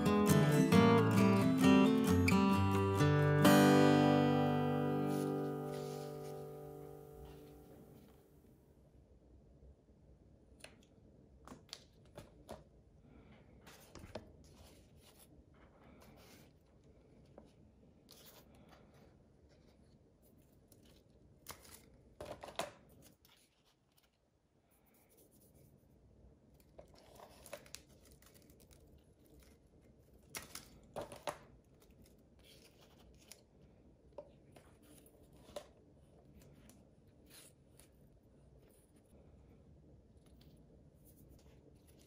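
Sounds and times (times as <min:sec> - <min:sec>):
paper rustling: 0:04.8 - 0:08.2, 0:26.6 - 0:39.2, 0:40.2 - 0:42.0.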